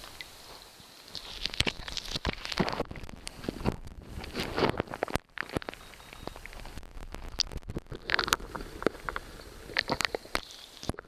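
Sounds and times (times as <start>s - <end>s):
muffled underwater river rumble: 2.7s - 11.0s.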